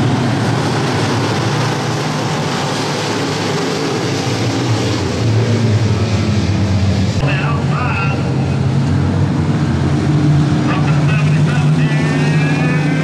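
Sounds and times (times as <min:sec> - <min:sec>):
race car engines running: 0:00.0 - 0:13.0.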